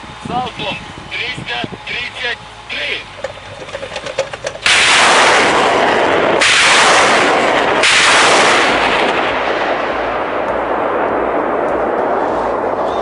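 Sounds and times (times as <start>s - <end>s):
rockets launching with rushing roar: 2.7s - 13.0s
rocket launch blasts: 4.6s - 13.0s.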